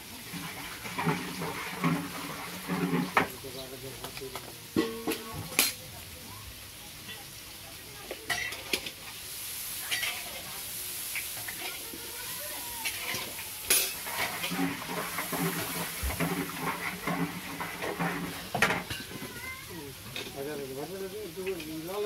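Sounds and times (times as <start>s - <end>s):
food sizzling in hot oil: 0.0s - 22.0s
metal spatula scraping pan: 0.3s - 3.4s, 9.9s - 10.4s, 12.8s - 19.4s
spatula clanking against pan: 4.8s - 5.8s.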